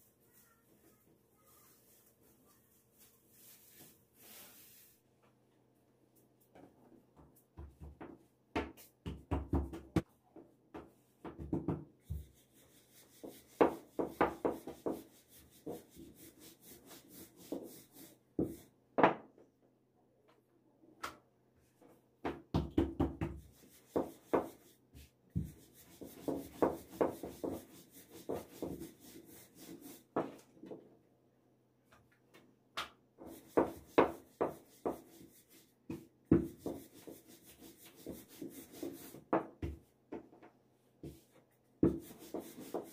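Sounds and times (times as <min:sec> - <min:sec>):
rolling pin rubbing on dough: 0:25.4 - 0:30.1, 0:41.8 - 0:42.9.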